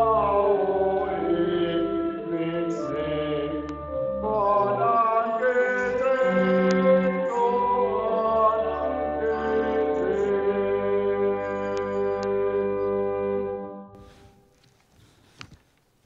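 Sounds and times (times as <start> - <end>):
hymn chords over bass line: 0.0 - 14.0.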